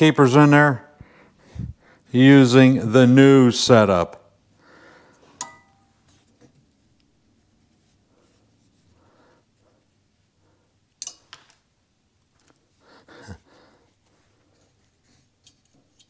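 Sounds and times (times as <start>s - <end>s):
ringing metal clink: 5.4s - 5.9s.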